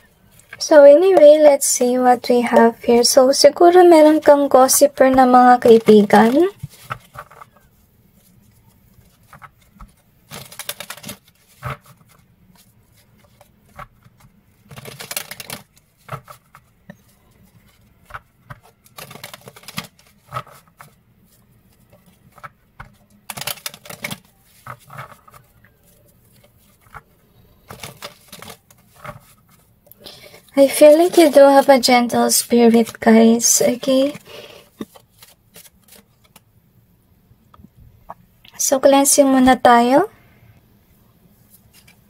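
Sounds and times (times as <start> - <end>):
cards being shuffled: 3.9 - 36.5, 41.5 - 42.0.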